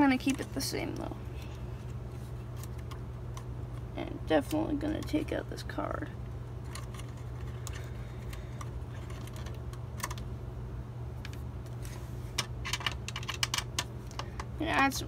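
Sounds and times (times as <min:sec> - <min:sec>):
steady low hum: 0:00.0 - 0:15.0
clicks and taps handling computer parts: 0:06.7 - 0:10.2, 0:12.4 - 0:14.5.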